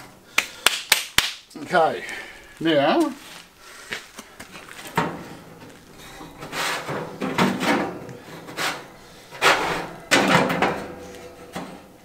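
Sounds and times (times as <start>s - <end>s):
metal grates scraping and clunking: 4.6s - 12.0s.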